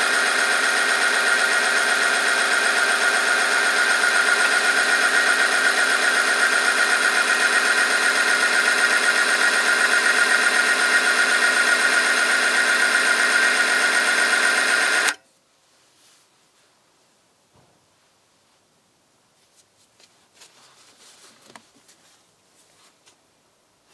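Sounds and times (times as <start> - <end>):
machine motor whining: 0.0 - 15.2.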